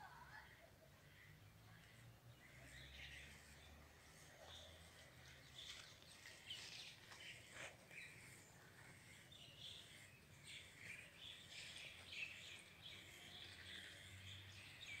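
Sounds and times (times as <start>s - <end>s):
faint birds chirping: 0.0s - 15.0s
outdoor background noise: 0.0s - 15.0s.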